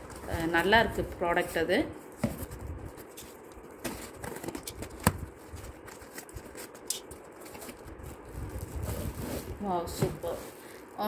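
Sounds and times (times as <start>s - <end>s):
cardboard box rustles and scrapes: 7.4s - 10.8s.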